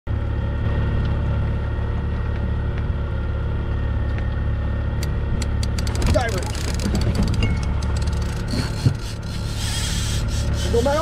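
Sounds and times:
boat engine droning: 0.1s - 11.0s.

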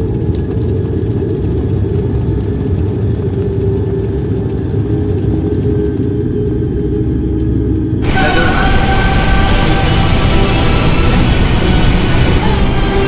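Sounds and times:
deep rumble: 5.2s - 13.0s.

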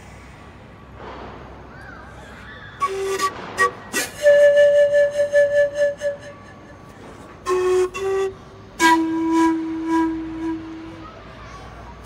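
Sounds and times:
pan flute notes: 2.2s - 11.5s.

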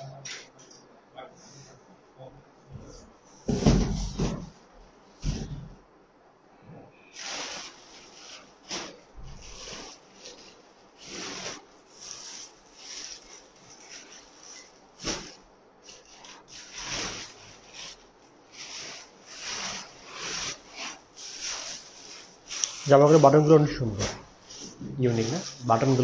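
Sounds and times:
plastic packaging crinkling: 7.2s - 26.0s.

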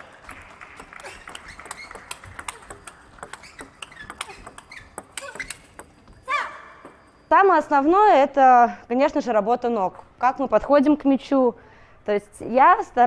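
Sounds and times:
table tennis ball clicking: 0.3s - 6.2s
shoes squeaking on floor: 0.8s - 8.0s.

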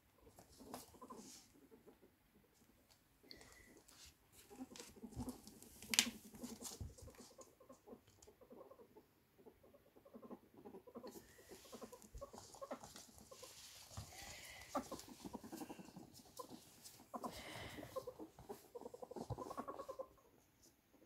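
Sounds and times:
ferret clucking: 4.5s - 21.0s
pattering on a wooden floor: 11.6s - 19.9s.

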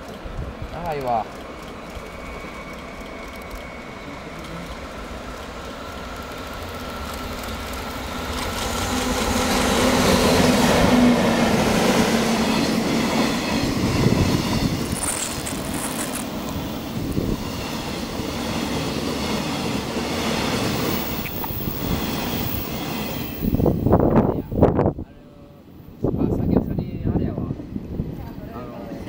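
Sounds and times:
locomotive hum: 0.0s - 26.6s
freight train rumbling past: 0.0s - 29.0s
wagon wheels on rails: 14.7s - 16.6s.

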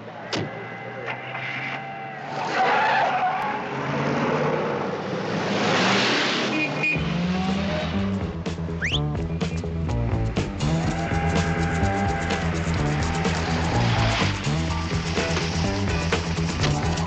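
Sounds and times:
car tyres squealing: 0.3s - 3.8s, 10.8s - 14.6s
car engine running: 7.0s - 17.0s
music with low bass line: 7.6s - 17.0s.

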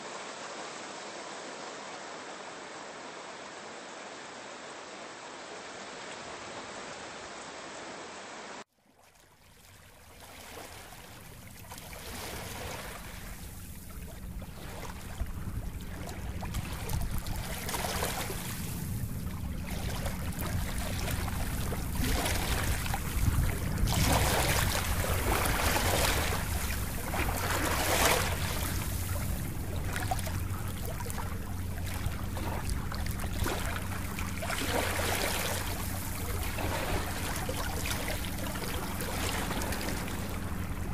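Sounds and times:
rushing water: 0.0s - 40.9s
steady low rumble: 11.1s - 40.9s.

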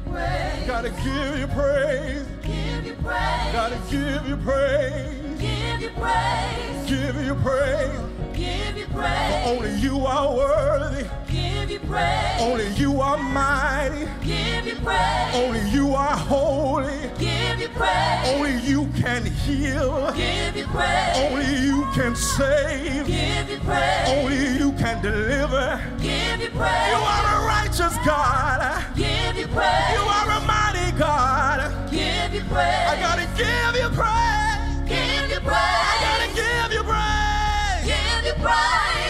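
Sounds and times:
backing vocal group: 0.0s - 39.0s
band playing gospel music: 0.0s - 39.0s
man singing lead: 0.7s - 2.5s, 3.6s - 5.4s, 6.7s - 8.2s, 9.4s - 11.2s, 12.4s - 14.2s, 15.3s - 17.2s, 18.3s - 20.5s, 21.1s - 26.0s, 26.9s - 29.0s.

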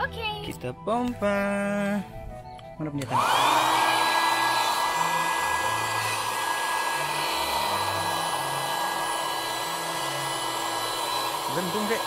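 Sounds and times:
electric air pump motor whine: 3.0s - 12.0s.

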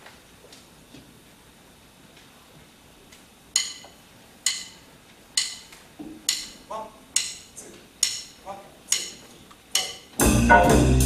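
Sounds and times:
sharp metallic percussion strikes: 3.6s - 4.8s, 6.3s - 11.0s.

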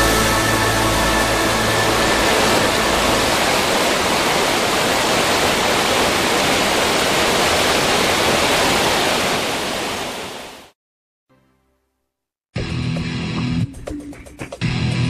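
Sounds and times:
flowing river water: 0.0s - 10.8s.

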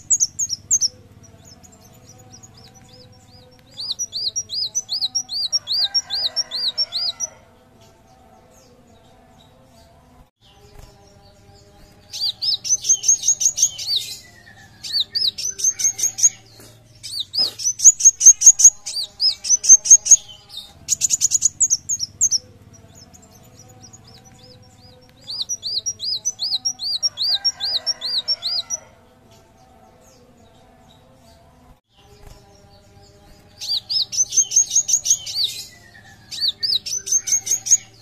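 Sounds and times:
bird rattling trill: 0.0s - 7.3s, 11.6s - 28.8s.

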